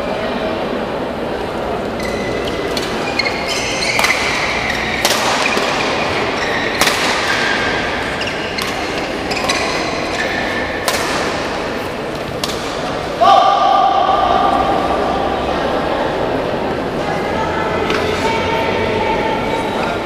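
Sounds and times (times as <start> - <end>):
shoes squeaking on court: 1.9 - 10.9
rackets striking shuttlecock: 2.0 - 13.2.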